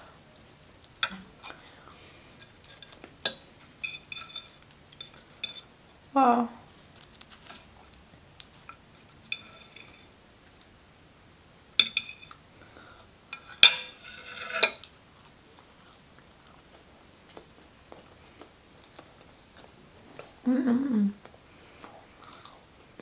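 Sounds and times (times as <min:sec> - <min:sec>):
fork scraping ceramic plate: 0:03.8 - 0:05.7, 0:09.3 - 0:10.0, 0:13.4 - 0:14.9.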